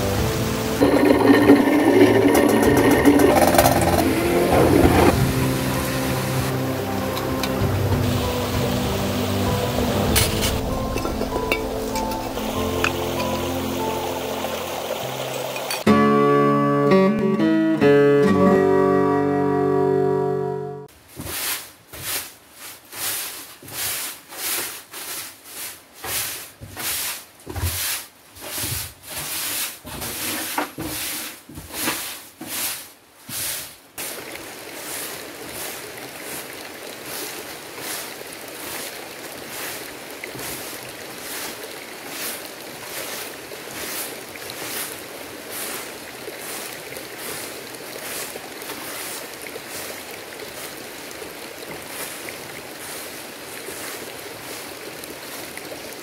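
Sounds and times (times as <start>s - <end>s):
broom sweeping wooden floor: 20.9s - 50.8s, 51.8s - 55.6s.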